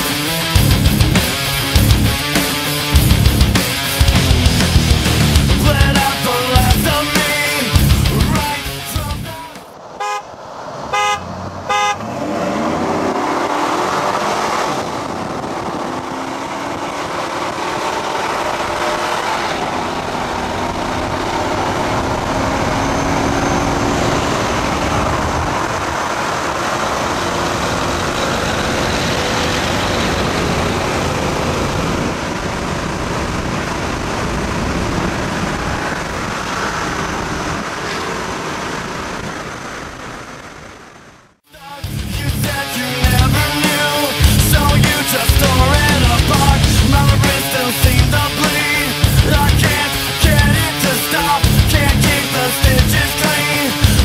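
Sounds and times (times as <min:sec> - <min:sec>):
engines accelerating hard: 0:00.0 - 0:54.0
road and wind noise: 0:00.0 - 0:54.0
car horn toots: 0:10.0 - 0:10.3, 0:10.9 - 0:12.2.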